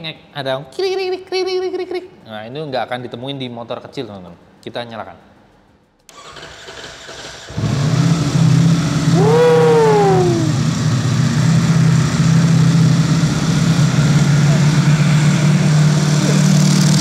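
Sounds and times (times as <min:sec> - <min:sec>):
motorcycle engine cranking: 0:06.1 - 0:07.8
engine whine: 0:07.6 - 0:17.0
motorcycle engine idling loud: 0:09.0 - 0:17.0.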